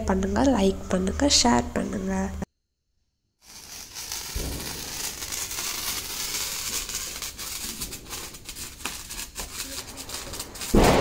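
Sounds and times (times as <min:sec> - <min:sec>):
sparkler crackles: 0:03.4 - 0:11.0
sparkler fizzing: 0:03.4 - 0:11.0.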